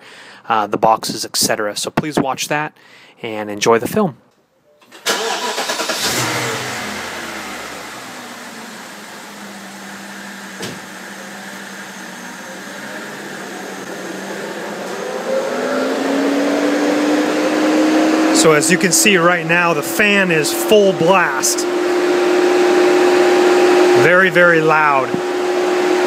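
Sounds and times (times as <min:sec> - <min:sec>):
car engine starting and idling: 0:04.8 - 0:26.0
electric cooling fan whine: 0:06.0 - 0:26.0.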